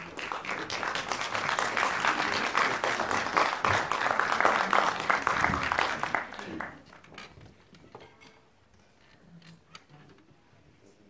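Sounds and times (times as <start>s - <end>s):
audience applause: 0.0s - 7.1s.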